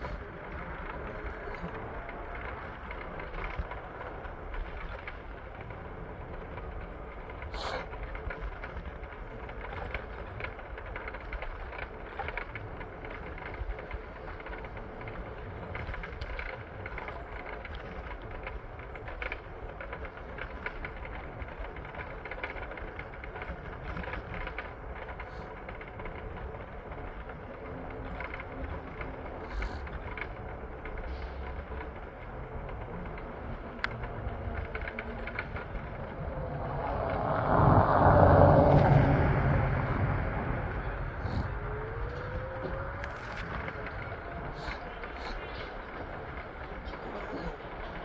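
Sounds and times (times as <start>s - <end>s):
traffic noise: 0.0s - 48.0s
vehicle passing close: 34.6s - 44.8s
short rising tone: 36.3s - 41.9s.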